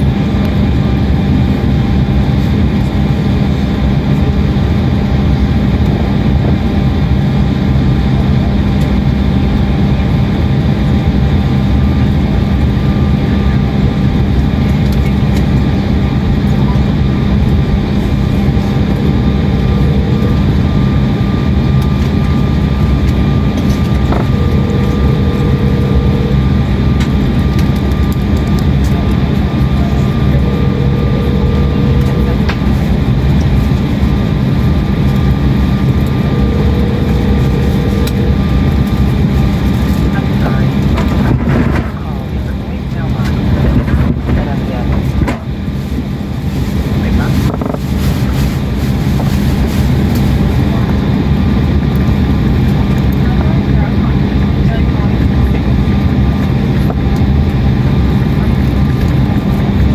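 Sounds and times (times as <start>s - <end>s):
steady low hum: 0.0s - 59.9s
rush of air in jet cabin: 13.0s - 53.6s
faint held tones: 23.6s - 27.3s, 29.4s - 32.7s, 35.9s - 38.8s.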